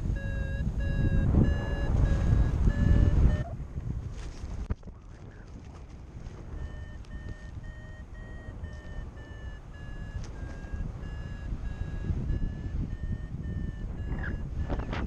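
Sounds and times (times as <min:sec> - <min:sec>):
variometer beeping: 0:00.0 - 0:03.5, 0:06.4 - 0:15.0
wind on microphone: 0:00.0 - 0:15.0.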